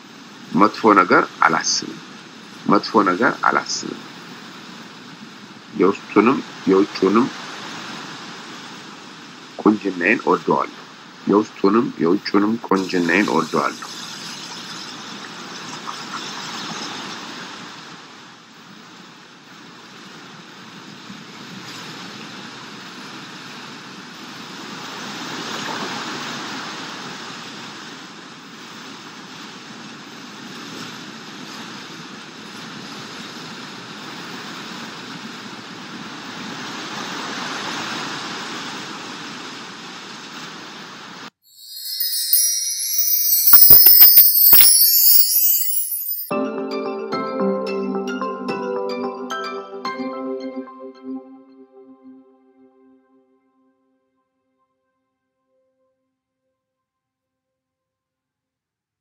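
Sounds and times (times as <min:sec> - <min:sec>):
rushing water: 0:00.0 - 0:12.0, 0:19.7 - 0:27.6
bright glittering chime jingle: 0:41.5 - 0:47.8.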